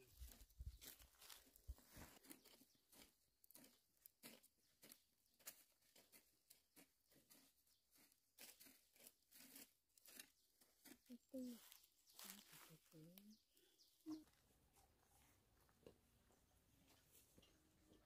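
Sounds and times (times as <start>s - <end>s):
footsteps on dry grass: 0.0s - 13.3s.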